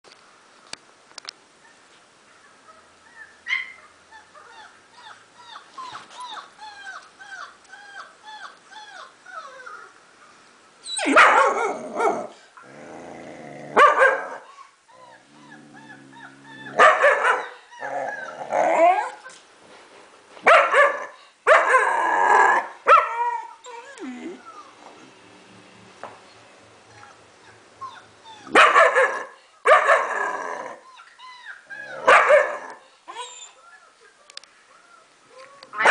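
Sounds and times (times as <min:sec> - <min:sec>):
puppy howling and barking: 0:15.0 - 0:19.2, 0:26.9 - 0:34.0.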